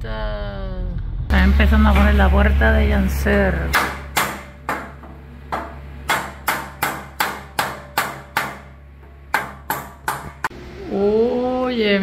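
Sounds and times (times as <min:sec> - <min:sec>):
hammer striking wood: 0:03.7 - 0:10.5.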